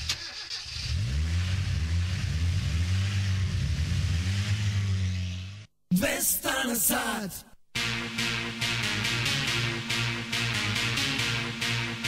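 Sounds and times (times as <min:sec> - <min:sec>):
engine revving: 0:00.0 - 0:05.7.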